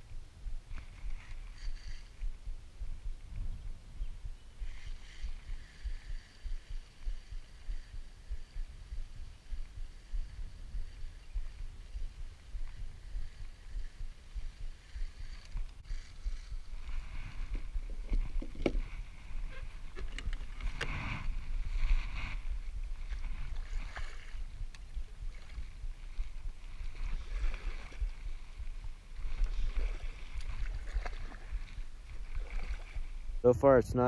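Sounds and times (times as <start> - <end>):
low rumble: 0.0 - 33.5
paddle splashing in water: 15.4 - 33.2.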